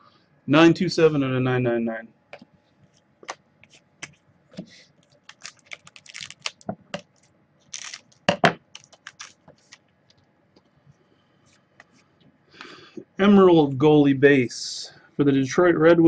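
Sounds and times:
trading cards being handled: 0:02.4 - 0:09.8.

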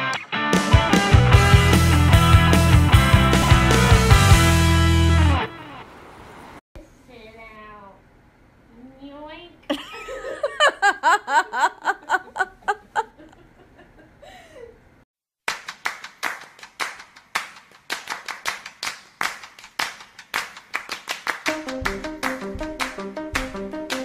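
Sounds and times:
person laughing: 0:09.7 - 0:14.8
sharp hand claps: 0:15.5 - 0:24.0.

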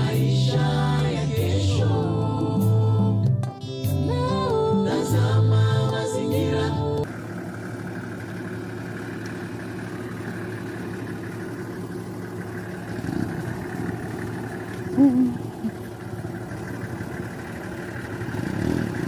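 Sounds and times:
choir music: 0:00.0 - 0:07.1
car engine running: 0:00.0 - 0:19.0.

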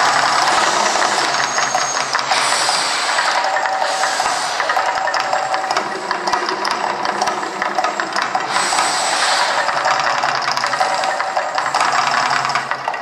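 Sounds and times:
flame jets rushing hiss: 0:00.0 - 0:06.8, 0:08.5 - 0:10.0
crackling clicks: 0:00.0 - 0:13.0.

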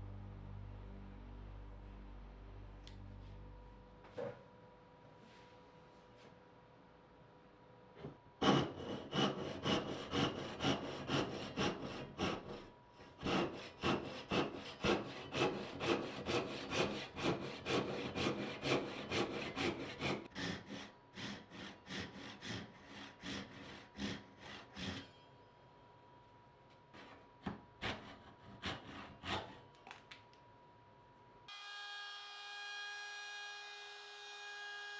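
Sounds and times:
hand saw cutting wood: 0:08.4 - 0:25.1, 0:27.8 - 0:29.6.

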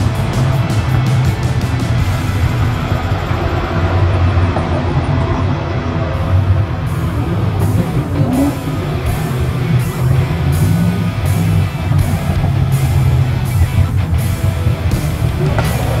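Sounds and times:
rock music with guitar and drums: 0:00.0 - 0:16.0.

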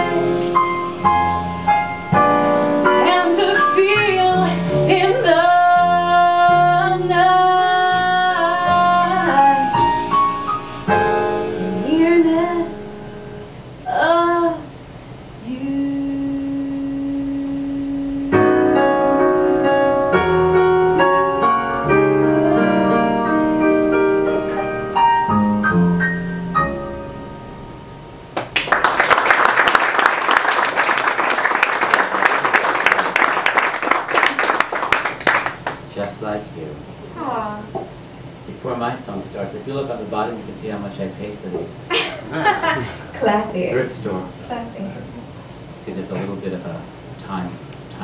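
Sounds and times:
piano accompaniment: 0:00.0 - 0:14.5, 0:17.4 - 0:36.1
woman singing ballad: 0:03.0 - 0:09.9, 0:11.8 - 0:13.1, 0:13.9 - 0:14.7, 0:15.4 - 0:18.6
audience applause: 0:28.4 - 0:35.8.

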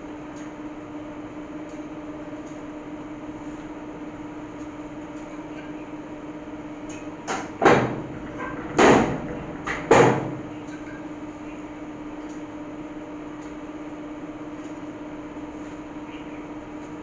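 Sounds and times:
press machine humming: 0:05.7 - 0:12.5
loud metallic clunks: 0:07.2 - 0:10.9.

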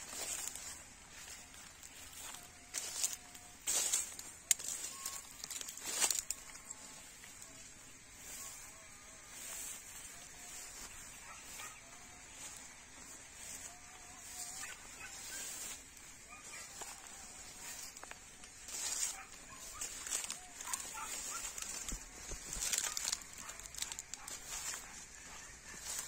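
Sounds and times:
rustling and crackling: 0:00.0 - 0:06.8, 0:13.4 - 0:26.0
insect drone: 0:00.0 - 0:26.0.

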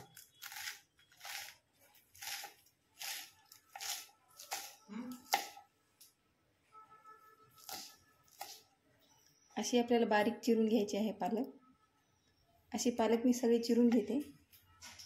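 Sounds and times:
knife slicing spinach leaves: 0:00.0 - 0:05.6, 0:07.6 - 0:08.6.

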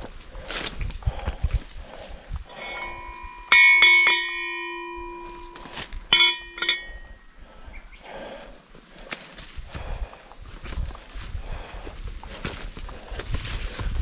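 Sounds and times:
high ding: 0:00.0 - 0:07.3
metal bell ringing: 0:00.0 - 0:07.4, 0:10.8 - 0:14.0.

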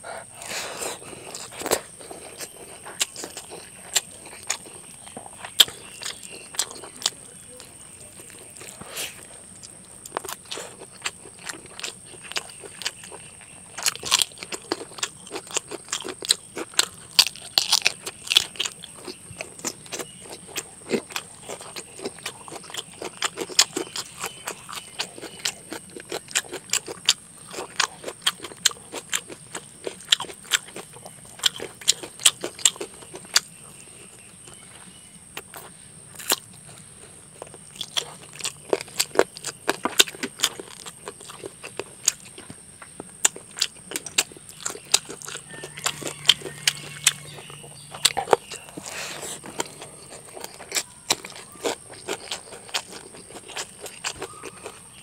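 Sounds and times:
man chewing with wet mouth smacks: 0:00.0 - 0:55.0.

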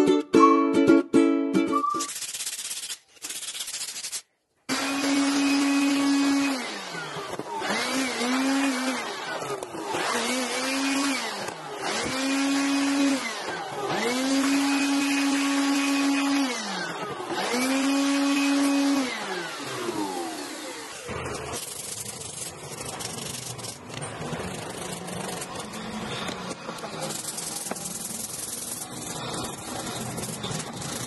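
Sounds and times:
heat gun fan whine: 0:04.7 - 0:21.4.

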